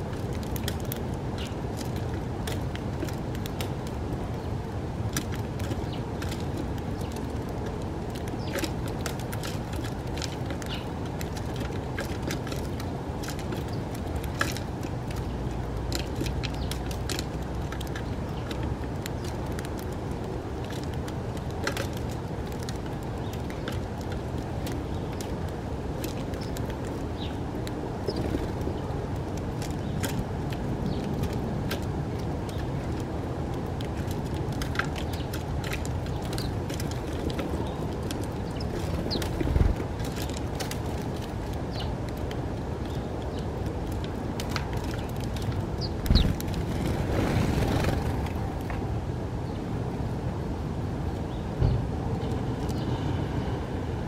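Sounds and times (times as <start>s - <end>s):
sparrows chirping: 0.5s - 1.7s, 5.6s - 14.5s, 15.1s - 19.9s, 23.2s - 25.4s, 26.2s - 31.4s, 34.9s - 40.4s, 41.6s - 42.0s, 42.8s - 43.5s, 44.9s - 48.5s, 51.2s - 53.0s.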